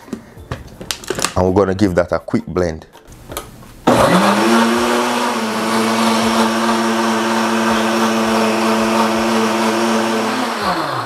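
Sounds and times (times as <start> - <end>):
blender running at high speed: 3.9 - 11.0.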